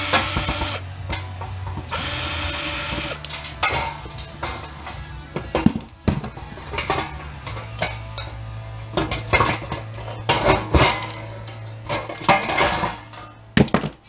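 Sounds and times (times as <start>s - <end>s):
pliers clinking and scraping metal: 2.9s - 5.5s.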